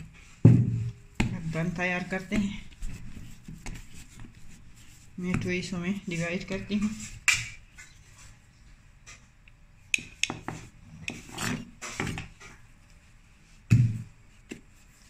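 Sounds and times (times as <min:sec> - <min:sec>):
hands patting bread dough: 0:00.0 - 0:07.6.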